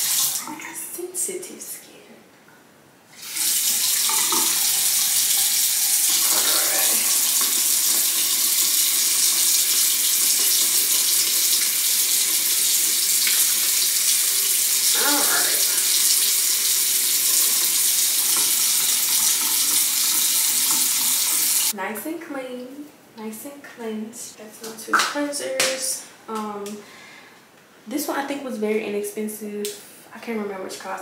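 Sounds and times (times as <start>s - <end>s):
tap water running: 0.0s - 0.6s, 3.2s - 21.8s.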